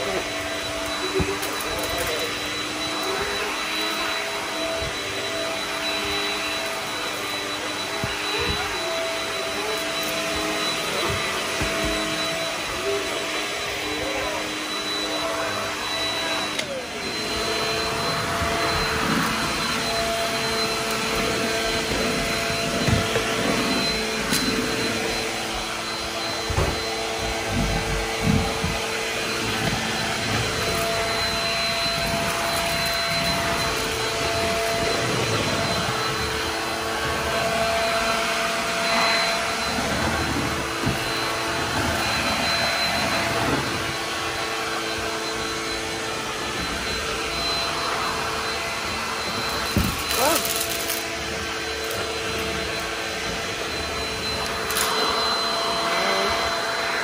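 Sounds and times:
vacuum cleaner motor whine: 0.0 - 57.0.

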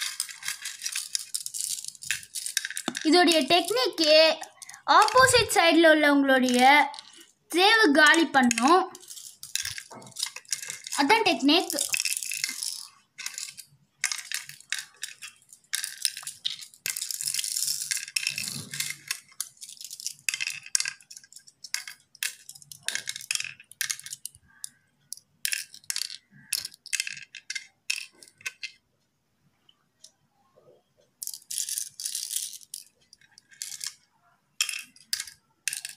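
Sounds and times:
shells clicking on wooden board: 0.0 - 3.1, 8.1 - 28.8, 34.6 - 35.9.

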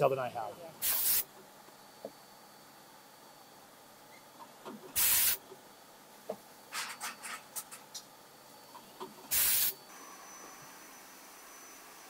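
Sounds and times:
air blast from pneumatics: 0.8 - 1.3, 5.0 - 5.4, 9.3 - 10.5.

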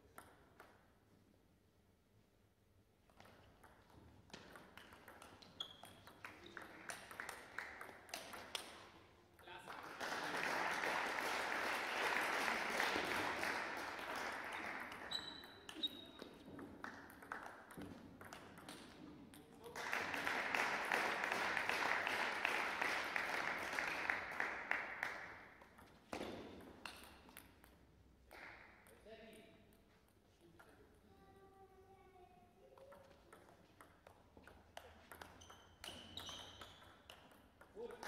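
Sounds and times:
clapping in a large hall: 4.6 - 25.8, 26.8 - 28.9.

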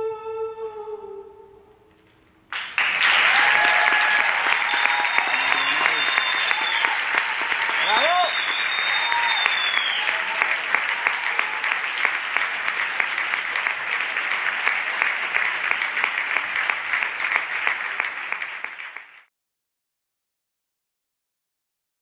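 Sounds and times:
audience applauding: 2.5 - 19.3.

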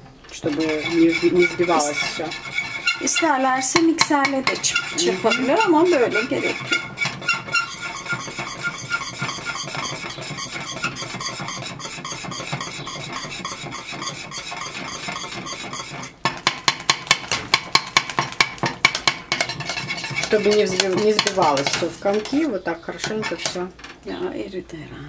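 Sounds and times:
whisk stirring pudding in pot: 0.4 - 23.7
whisk clattering against pot: 0.4 - 24.0.

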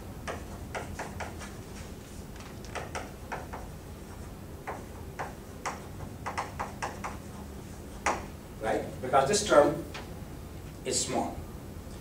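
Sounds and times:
chalk tapping on blackboard: 0.2 - 1.6, 2.6 - 8.3.

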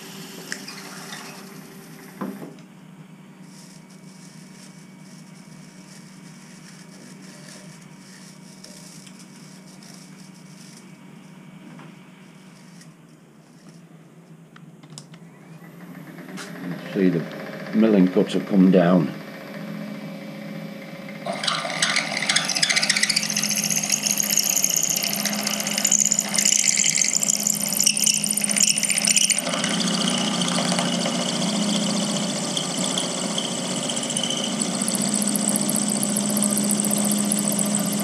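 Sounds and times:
spindle motor hum: 0.0 - 38.0
milling cutter cutting metal: 21.3 - 38.0.

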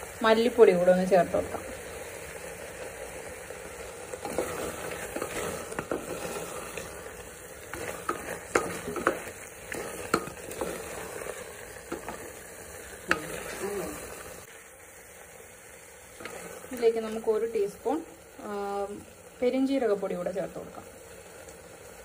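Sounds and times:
sizzling: 0.0 - 22.0
wooden spatula scraping a pot: 4.2 - 14.5, 16.2 - 17.3
spatula knocking pot side: 7.7 - 10.8.

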